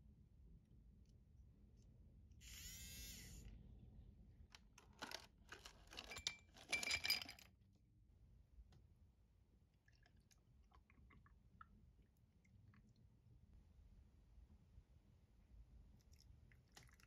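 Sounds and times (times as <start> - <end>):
milk frother whirring: 2.4 - 3.5
ice cubes clinking into glass: 5.9 - 7.4.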